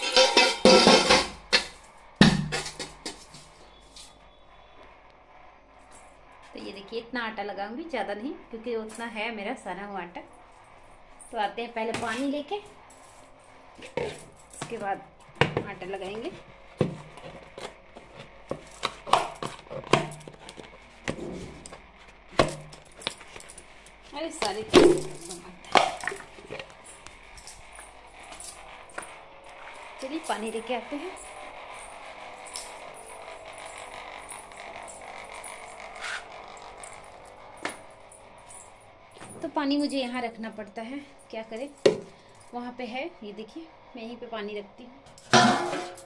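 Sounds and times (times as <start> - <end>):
kitchen utensils knocking and clinking: 0.0 - 3.4, 45.2 - 46.0
aquarium pump motor humming: 13.6 - 42.0.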